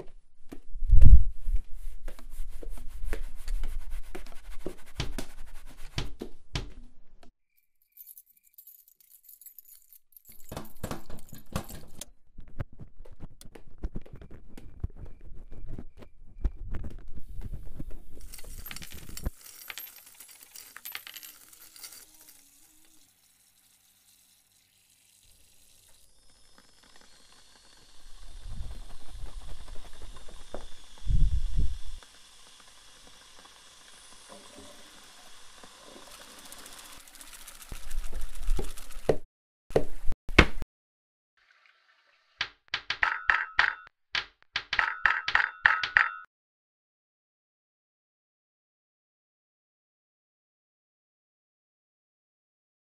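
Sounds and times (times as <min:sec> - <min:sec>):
small hard objects clattering: 0:18.2 - 0:26.0.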